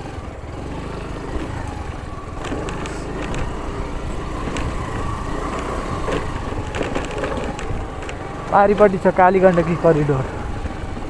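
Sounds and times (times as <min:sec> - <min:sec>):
motorcycle engine running: 0:00.0 - 0:11.0
knocks and rattles over stones: 0:02.3 - 0:11.0.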